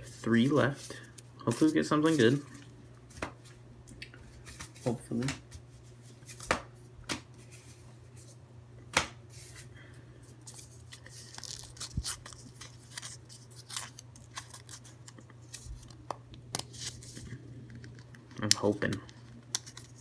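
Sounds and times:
low steady hum: 0:00.0 - 0:20.0
paper crinkling and tearing: 0:10.5 - 0:16.0, 0:16.6 - 0:20.0.

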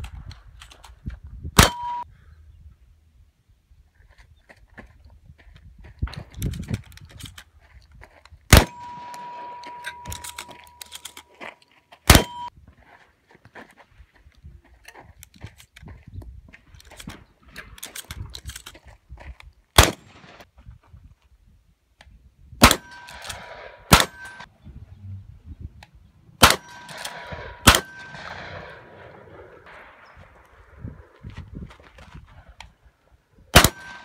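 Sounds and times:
shotgun shots: 0:01.6 - 0:02.0, 0:08.5 - 0:10.8, 0:12.1 - 0:12.5, 0:19.8 - 0:20.4, 0:22.6 - 0:24.5, 0:26.4 - 0:31.2, 0:33.5 - 0:34.0
steel target ringing: 0:01.6 - 0:02.0, 0:08.6 - 0:10.8, 0:24.0 - 0:24.5, 0:26.4 - 0:28.8
shells clicking into magazine tube: 0:09.1 - 0:11.3.

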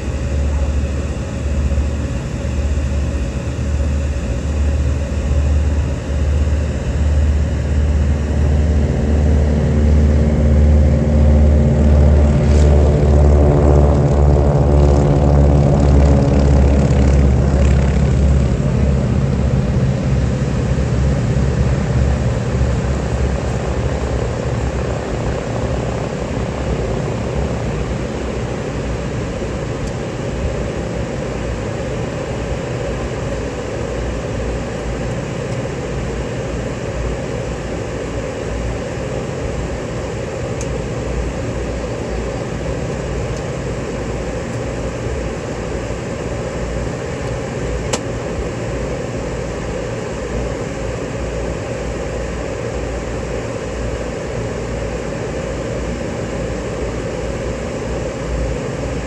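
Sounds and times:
steady rushing drone: 0:00.0 - 0:31.6
propeller plane engines rumbling: 0:00.0 - 0:59.0.

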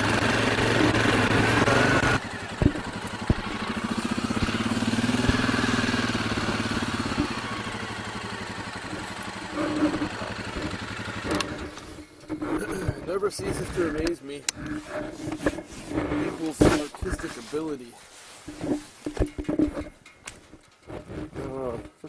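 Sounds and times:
quad bike engine running: 0:00.0 - 0:14.7
sharp knocks: 0:00.9 - 0:05.8.

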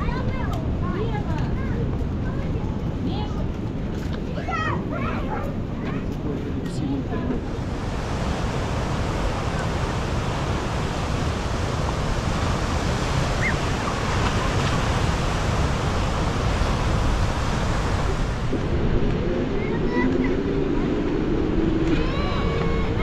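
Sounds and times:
surf breaking on beach: 0:07.4 - 0:23.0.

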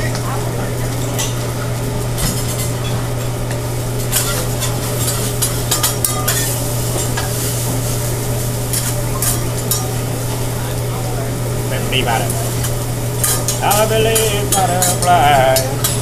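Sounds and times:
food sizzling on a griddle: 0:00.0 - 0:16.0
steady low hum: 0:00.0 - 0:16.0
metal spatula scraping and clacking: 0:04.1 - 0:07.4, 0:13.2 - 0:16.0.

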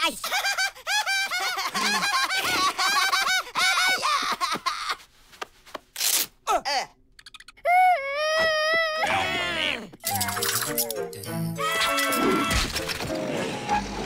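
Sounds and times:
girl and man laughing: 0:00.2 - 0:05.0
short tearing noise: 0:05.9 - 0:06.4.

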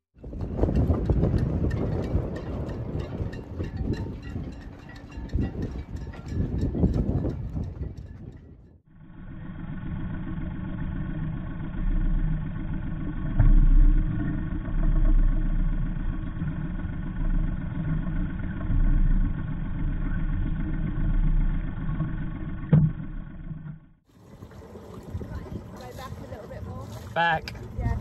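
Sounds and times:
diesel engine idling: 0:08.9 - 0:24.1.

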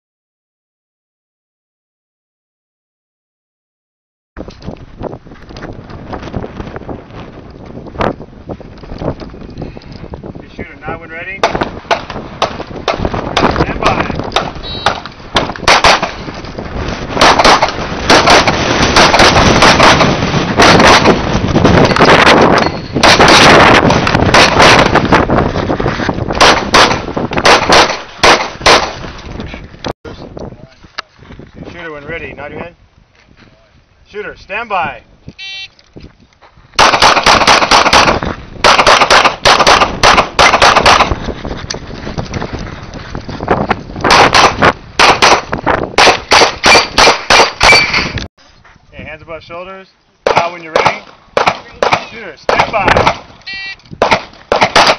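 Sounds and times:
pistol shots: 0:11.4 - 0:16.2, 0:17.2 - 0:21.2, 0:23.0 - 0:25.0, 0:26.4 - 0:29.0, 0:36.8 - 0:41.2, 0:44.1 - 0:48.1, 0:50.3 - 0:53.3, 0:54.0 - 0:54.9
electronic timer beep: 0:14.6 - 0:14.9, 0:22.6 - 0:23.0, 0:35.4 - 0:35.8, 0:53.4 - 0:53.8.

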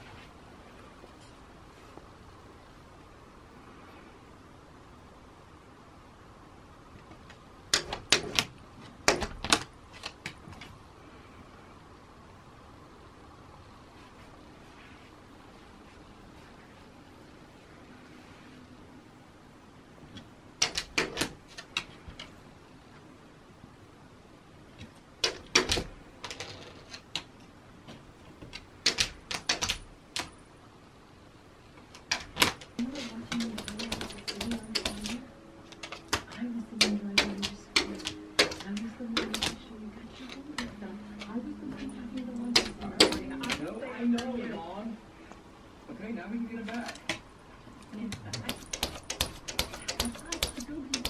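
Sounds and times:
faint room noise: 0:00.0 - 0:51.0
sharp taps and clicks: 0:20.2 - 0:22.3, 0:28.4 - 0:30.3, 0:31.9 - 0:35.2, 0:35.8 - 0:39.6, 0:48.1 - 0:51.0.

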